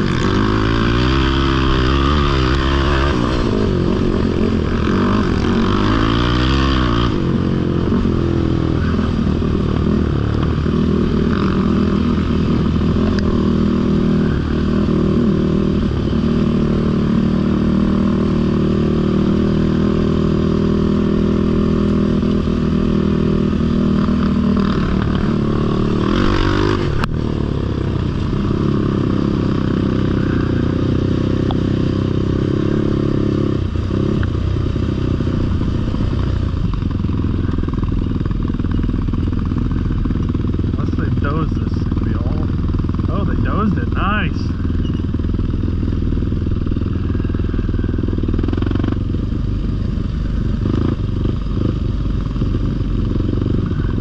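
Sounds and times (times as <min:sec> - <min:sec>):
atv engine revving: 0:00.0 - 0:54.0.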